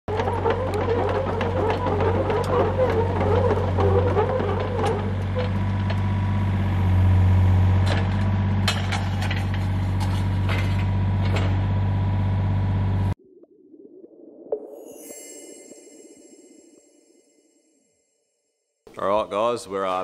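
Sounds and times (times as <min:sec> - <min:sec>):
excavator arm clanking: 0:00.1 - 0:06.4
diesel engine running: 0:00.1 - 0:13.2.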